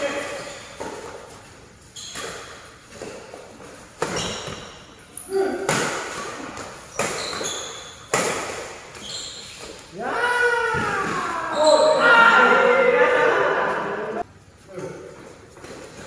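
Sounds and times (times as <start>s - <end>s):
rackets hitting shuttlecock: 5.6s - 9.9s.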